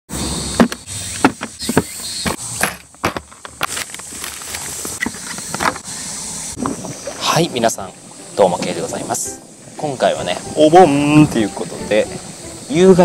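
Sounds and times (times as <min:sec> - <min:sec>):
footsteps through brush and stones: 0:00.6 - 0:05.8.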